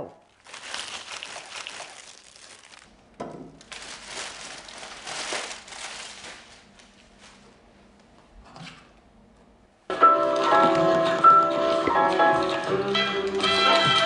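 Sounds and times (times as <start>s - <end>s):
paper bag crinkling: 0.3s - 3.0s, 3.6s - 7.6s.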